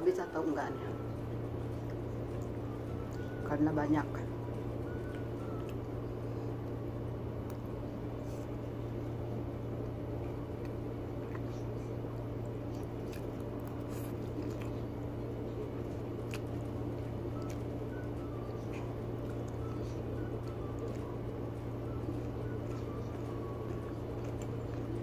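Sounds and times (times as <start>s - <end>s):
low hum: 0.0s - 25.0s
person chewing and slurping noodles: 12.6s - 25.0s.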